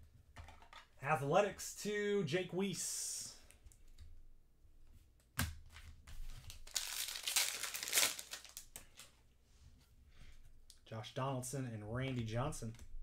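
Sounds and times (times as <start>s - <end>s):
foil wrapper tearing and crinkling: 6.4s - 8.8s.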